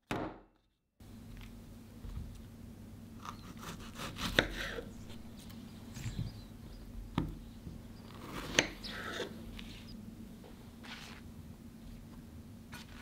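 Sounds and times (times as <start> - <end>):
knife slicing strawberries: 3.2 - 5.5, 8.1 - 9.7.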